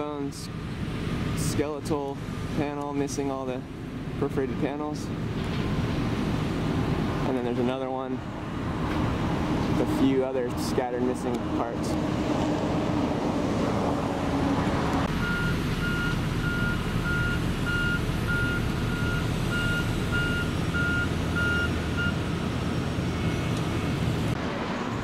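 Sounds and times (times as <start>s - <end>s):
heavy engine rumbling: 0.0s - 25.0s
reversing alarm beeping: 15.2s - 22.2s.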